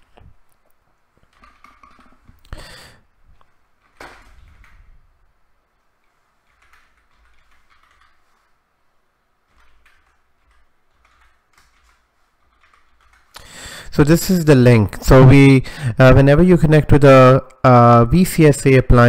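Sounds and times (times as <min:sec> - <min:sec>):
computer keyboard keystrokes: 0:03.4 - 0:05.0, 0:06.0 - 0:08.5, 0:09.5 - 0:13.5.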